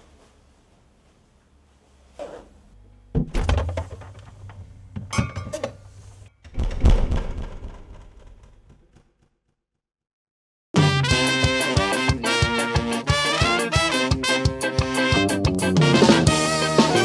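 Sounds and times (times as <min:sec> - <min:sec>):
heavy thuds and knocks: 0:06.5 - 0:09.2
loud thump: 0:06.5 - 0:09.2.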